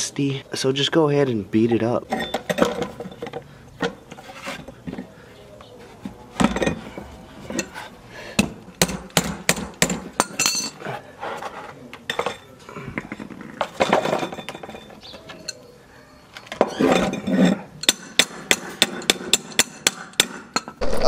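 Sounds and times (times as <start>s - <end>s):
wrench and metal parts clinking: 2.1s - 4.0s, 10.2s - 10.8s, 12.1s - 15.6s.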